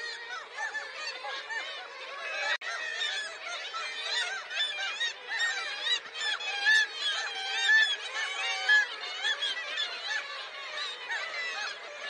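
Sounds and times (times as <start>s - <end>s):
seabird colony calling: 0.0s - 12.0s.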